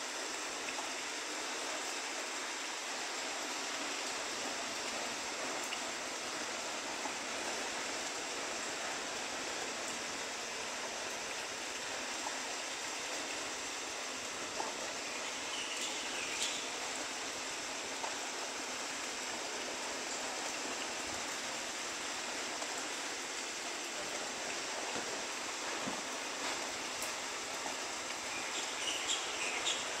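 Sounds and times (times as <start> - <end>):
steady rain on grass and trees: 0.0 - 30.0.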